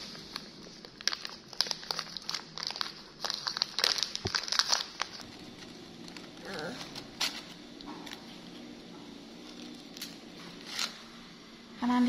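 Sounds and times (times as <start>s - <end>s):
plastic snack packet crinkling: 0.0s - 5.3s.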